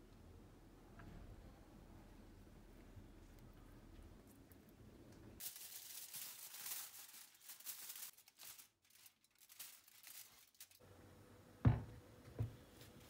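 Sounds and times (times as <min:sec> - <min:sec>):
aluminium foil crinkling: 0:05.4 - 0:10.8.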